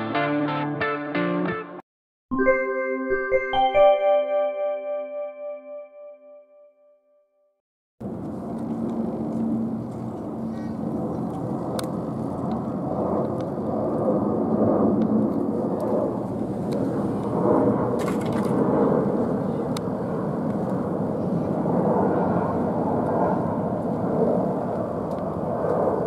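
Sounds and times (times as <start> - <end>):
jet engines rushing overhead: 8.0 - 26.0.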